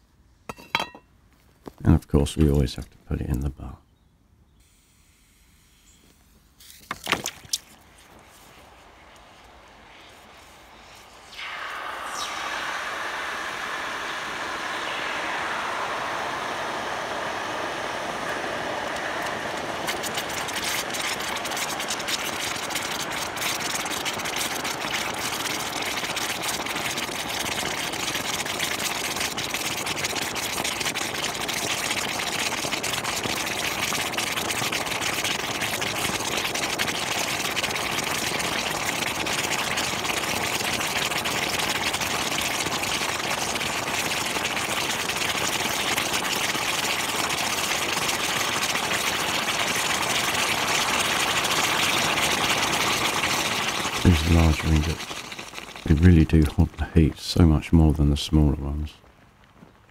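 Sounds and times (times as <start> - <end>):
gas forge burner roaring: 11.3 - 31.6, 49.0 - 56.1.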